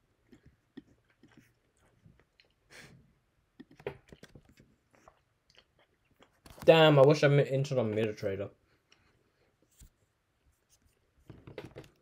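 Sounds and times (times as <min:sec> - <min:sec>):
faint chewing: 0:00.0 - 0:06.6.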